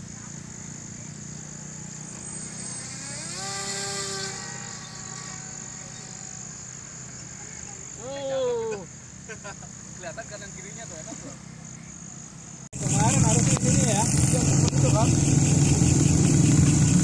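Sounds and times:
model plane motor whirring: 0:01.6 - 0:08.0.

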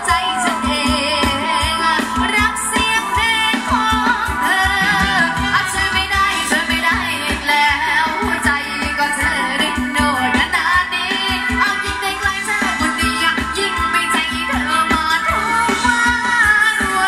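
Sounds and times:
steady drum beat: 0:02.1 - 0:07.8
sustained instrumental tones: 0:04.3 - 0:07.3.

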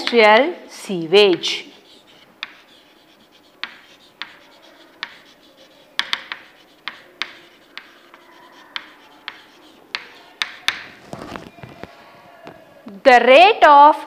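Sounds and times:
chalk tapping on chalkboard: 0:00.0 - 0:00.3, 0:01.0 - 0:11.5
chalk scratching: 0:00.9 - 0:11.6.

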